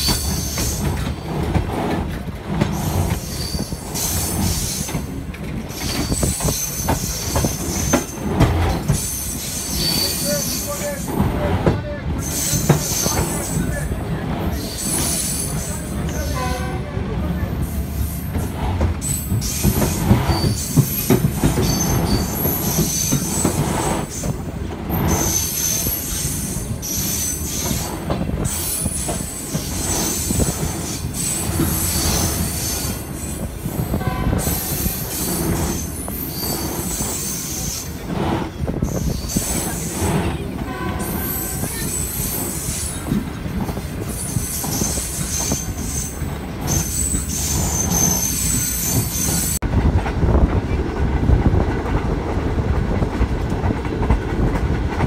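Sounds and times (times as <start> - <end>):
train wheels rumbling on rails: 0.0 - 55.0
high-pitched wheel squealing: 44.1 - 49.6.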